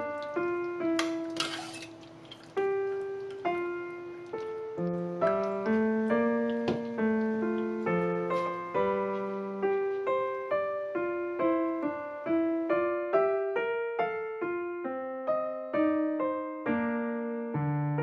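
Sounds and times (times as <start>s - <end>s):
gentle piano melody: 0.0s - 18.0s.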